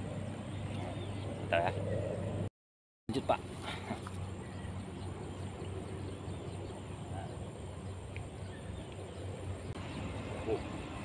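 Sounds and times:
outdoor background noise: 0:00.0 - 0:02.5, 0:03.1 - 0:11.0
low hum: 0:03.4 - 0:11.0.

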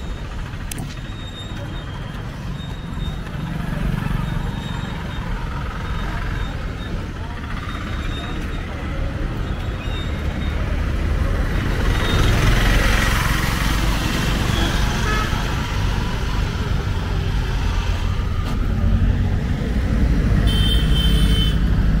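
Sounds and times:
vehicle engines rumbling: 0:00.0 - 0:22.0
car horn: 0:14.6 - 0:15.6, 0:20.4 - 0:21.7.

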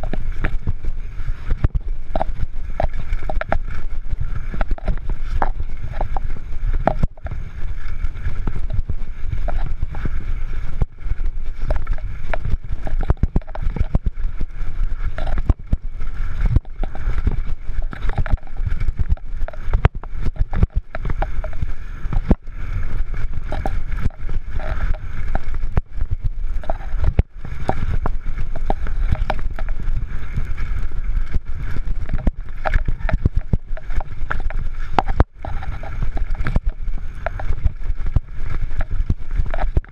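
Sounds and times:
mountain bike rattling: 0:00.0 - 0:39.9
wind buffeting microphone: 0:00.0 - 0:39.9.

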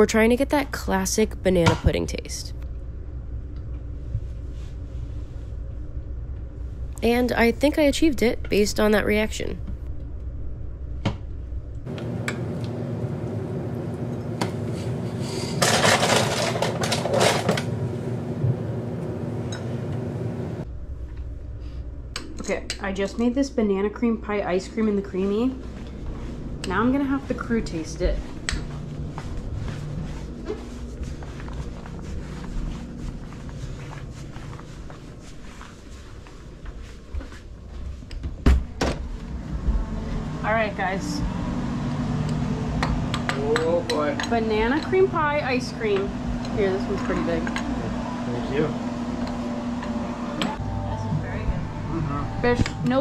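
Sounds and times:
low steady rumble: 0:00.0 - 0:12.0, 0:18.0 - 0:53.0
motor-like hum: 0:16.4 - 0:53.0
footsteps on carpeted stairs: 0:27.7 - 0:40.2
footsteps on wooden floor: 0:27.7 - 0:40.3.

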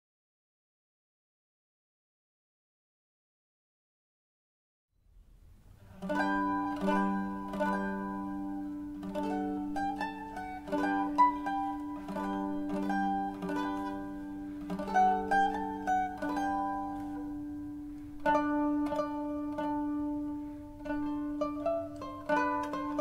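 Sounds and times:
mandolin playing a melody: 0:05.7 - 0:23.0.

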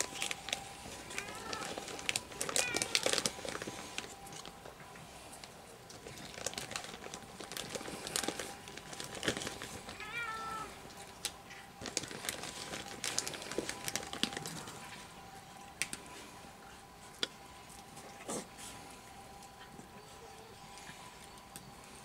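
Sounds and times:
cats crunching dry kibble: 0:00.0 - 0:22.0
cat meow: 0:01.1 - 0:01.8, 0:02.5 - 0:03.2, 0:10.0 - 0:10.8.

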